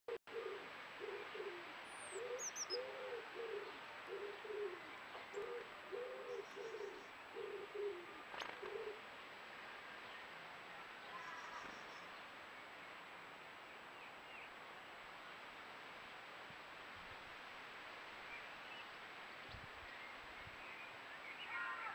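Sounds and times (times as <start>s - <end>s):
pigeon cooing: 0.2s - 9.1s
small bird chirping: 2.0s - 2.8s.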